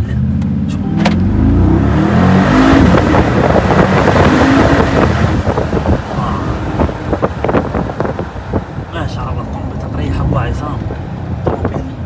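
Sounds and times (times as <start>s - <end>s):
car engine accelerating: 0.0s - 12.0s
sharp exhaust crackles: 1.1s - 8.9s.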